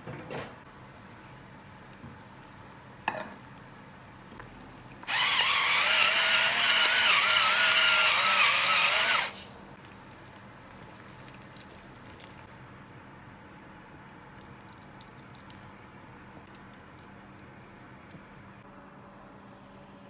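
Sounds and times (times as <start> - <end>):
pepper mill motor whining: 5.0 - 9.4.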